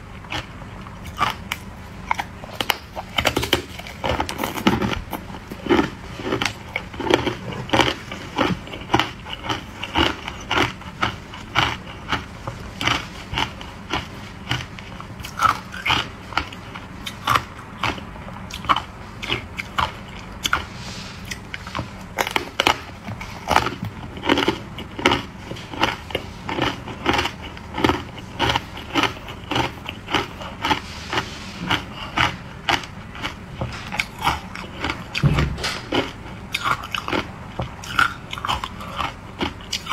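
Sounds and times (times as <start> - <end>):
ice cubes crunching: 23.5 - 35.3.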